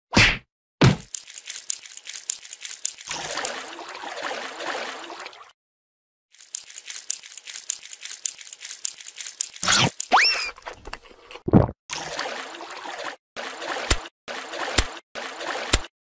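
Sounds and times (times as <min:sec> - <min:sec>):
wet slithering clicking and crackling: 0:01.0 - 0:03.8, 0:06.3 - 0:12.3.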